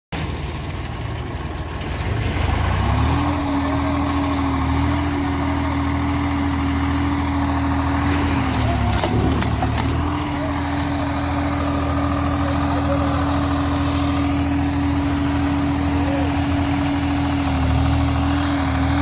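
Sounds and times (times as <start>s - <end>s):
diesel tractor engine running hard: 0.2s - 19.0s.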